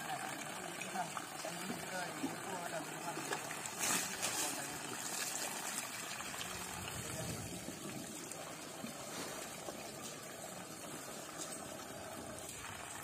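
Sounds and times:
water running: 0.0 - 13.0.

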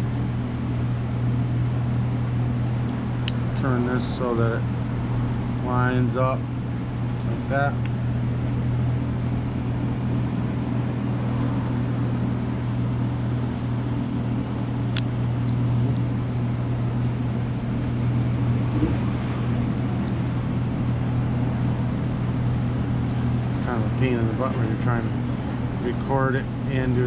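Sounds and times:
low machine hum: 0.0 - 27.0
sharp click: 14.9 - 15.1.

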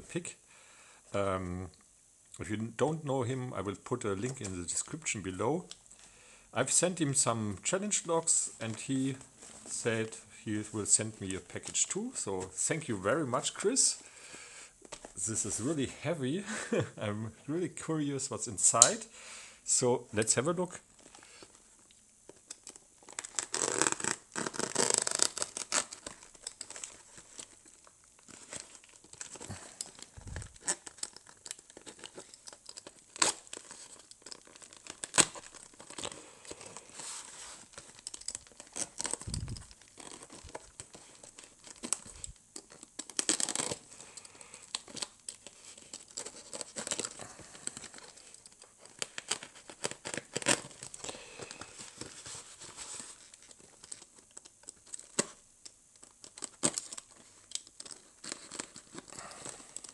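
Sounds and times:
duct tape tearing: 22.5 - 52.1, 56.0 - 59.9.

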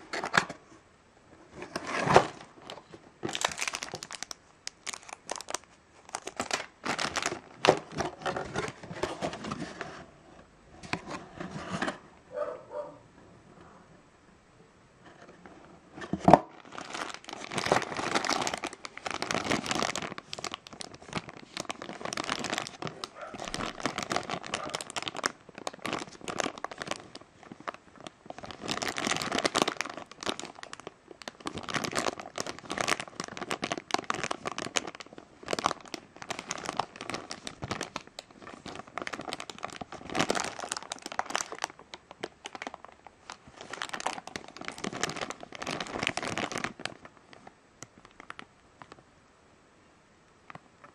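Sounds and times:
plastic bag crinkling: 1.7 - 9.8, 16.2 - 49.0.

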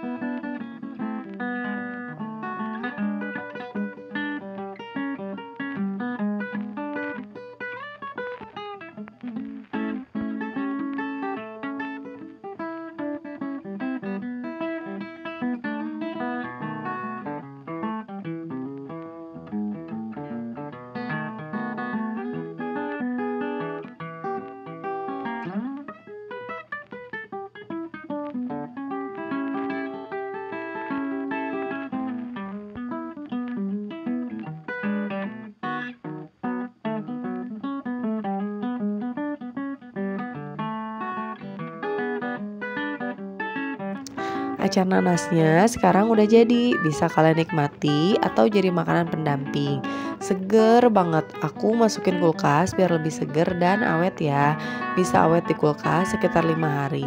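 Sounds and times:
guitar picking a melody: 0.0 - 57.0.

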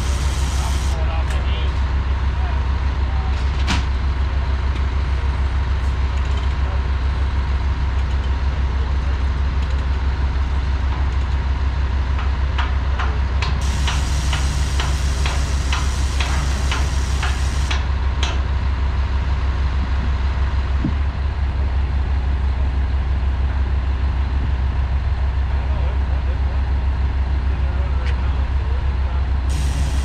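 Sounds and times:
air hissing: 0.0 - 1.0, 13.6 - 17.8, 29.5 - 30.0
diesel engine idling: 0.0 - 30.0.

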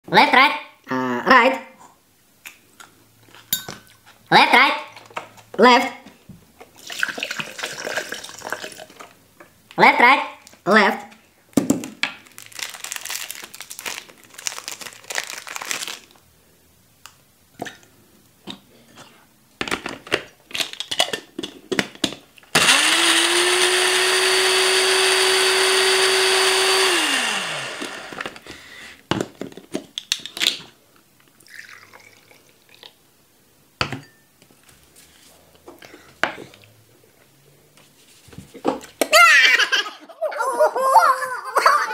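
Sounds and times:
blender motor whining: 22.6 - 28.5.

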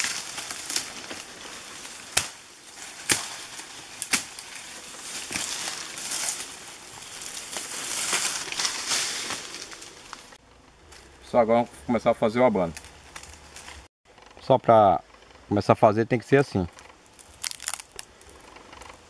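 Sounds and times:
rustling of brush and fronds: 0.0 - 13.9, 15.0 - 19.0
machete chopping: 2.0 - 4.5.

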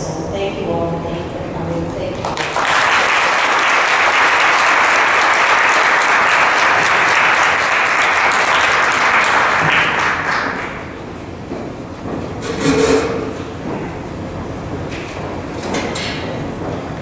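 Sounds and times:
audience applause: 2.2 - 11.0.

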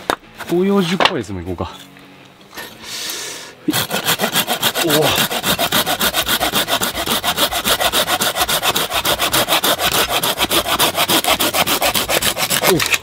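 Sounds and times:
hand saw cutting wood: 3.7 - 13.0.

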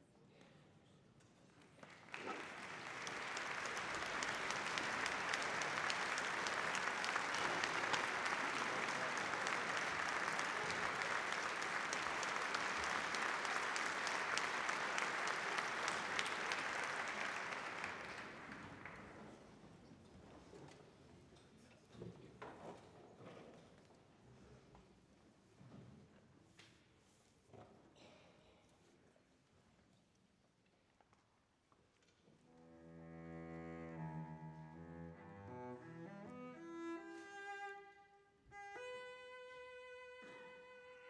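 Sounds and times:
audience applauding: 1.8 - 19.4.

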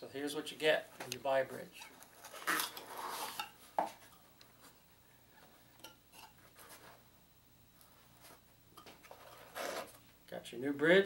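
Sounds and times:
faint handling sounds: 0.8 - 7.1, 7.7 - 10.3
cardboard rustling and scraping: 9.0 - 10.0.

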